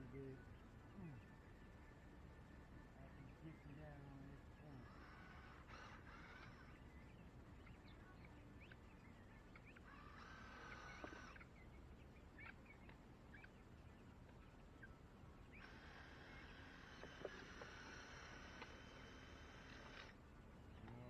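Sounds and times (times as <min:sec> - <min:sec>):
bird chirps: 0:00.0 - 0:21.0
cordless drill whirring: 0:04.8 - 0:06.6, 0:15.6 - 0:20.2.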